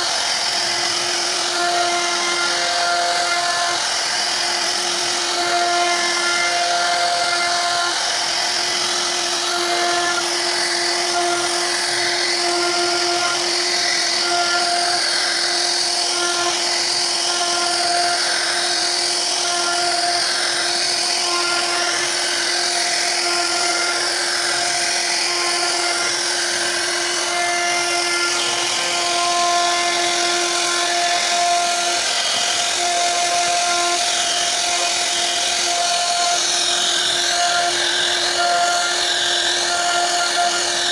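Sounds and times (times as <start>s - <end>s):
hiss of wood cutting: 0.0s - 40.9s
router spindle whine: 0.0s - 40.9s.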